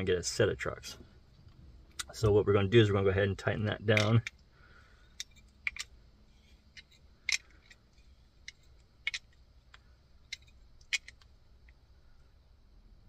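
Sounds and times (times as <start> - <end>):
hand tool clicking on nut: 5.2 - 5.9, 6.8 - 7.8, 8.4 - 11.3.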